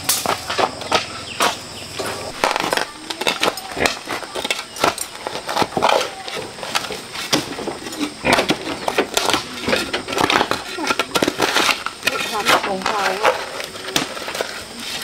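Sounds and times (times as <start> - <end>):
shovel and hoe chopping dirt: 0.0 - 15.0.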